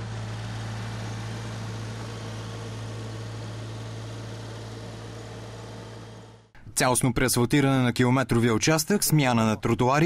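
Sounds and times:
loader engine running: 0.0s - 6.5s.

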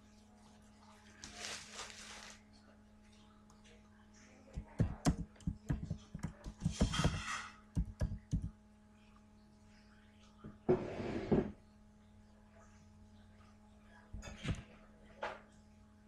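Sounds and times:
faint steady hum: 0.0s - 16.0s
short rustling noises: 1.2s - 2.4s
keyboard and mouse clicks: 7.8s - 8.5s.

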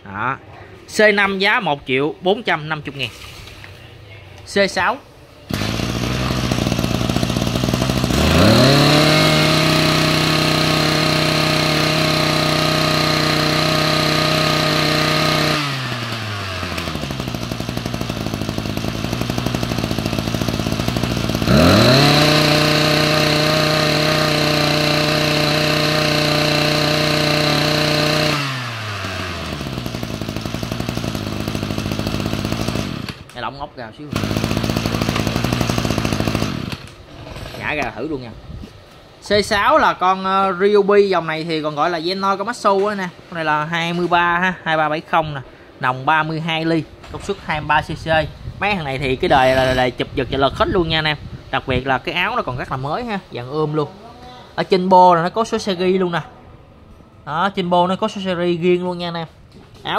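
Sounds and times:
brush cutter engine revving: 5.4s - 38.0s, 49.0s - 50.8s.

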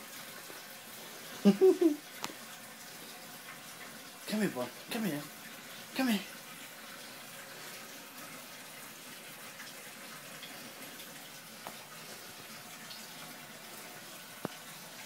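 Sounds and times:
background hiss: 0.0s - 6.3s.

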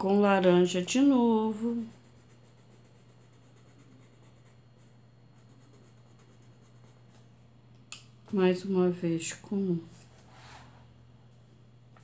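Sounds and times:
steady low hum: 0.0s - 12.0s
pencil scratching on paper: 1.6s - 7.1s.

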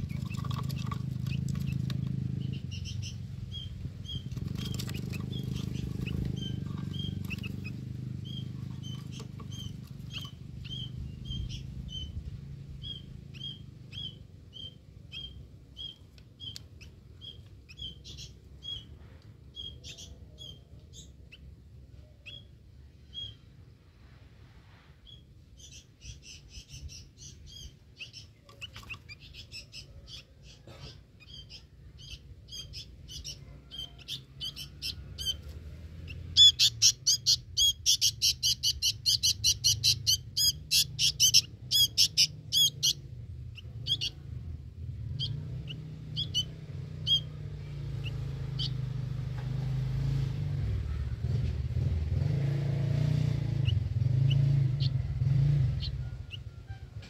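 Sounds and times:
bird chirping: 0.0s - 23.5s, 25.0s - 49.0s, 53.5s - 57.0s
low engine rumble: 0.0s - 57.0s.

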